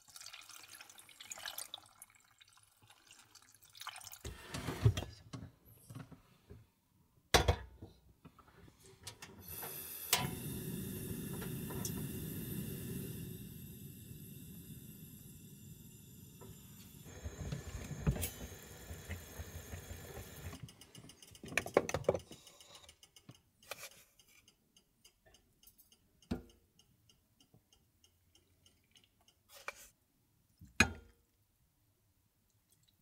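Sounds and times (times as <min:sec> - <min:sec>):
faint regular ticking: 0:20.5 - 0:29.5.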